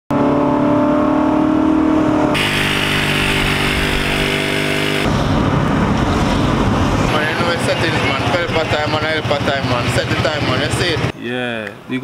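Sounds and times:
road noise: 0.1 - 12.0
rushing wind: 0.8 - 8.8
motorcycle engine running: 2.2 - 11.1.

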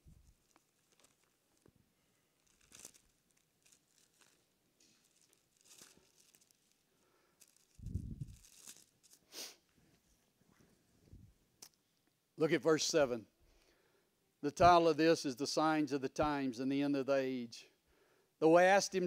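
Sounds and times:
thin pages being turned: 0.2 - 1.8, 2.4 - 6.8, 7.4 - 9.2.

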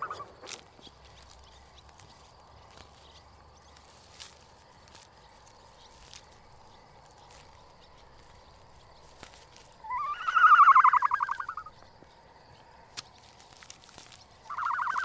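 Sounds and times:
whinny-like animal call: 9.8 - 11.7, 14.5 - 15.0.

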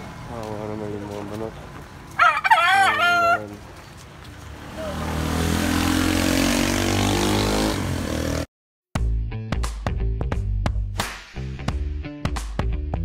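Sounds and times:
vehicle engine: 0.0 - 8.5
rooster crowing: 2.2 - 3.6.

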